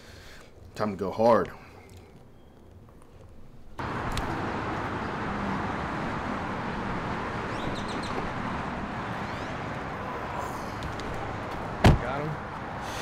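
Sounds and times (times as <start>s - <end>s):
traffic noise: 0.0s - 13.0s
bird chirps: 2.2s - 2.8s, 7.5s - 8.3s.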